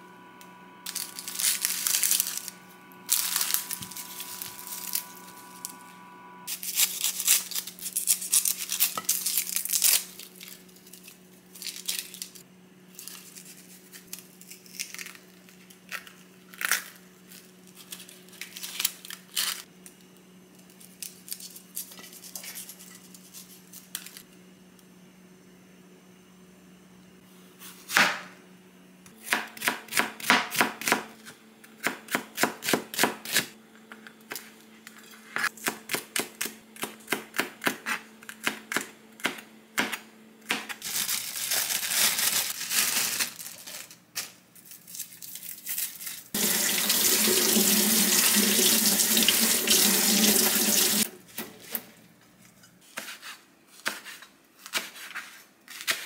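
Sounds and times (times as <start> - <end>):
knife slicing leaves: 0.9 - 2.5, 52.9 - 56.0
tap water running: 46.4 - 51.1.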